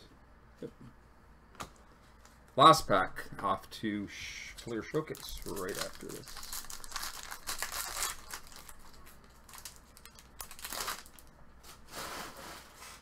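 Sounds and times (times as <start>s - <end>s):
cards rustling as shuffled: 4.7s - 11.3s
wrapper crinkling as torn open: 5.0s - 11.8s.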